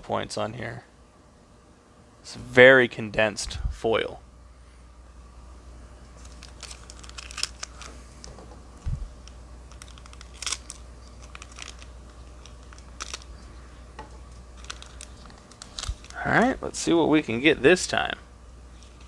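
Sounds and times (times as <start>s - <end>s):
foil pack crinkling: 6.1s - 8.4s, 9.2s - 13.6s, 14.3s - 16.3s.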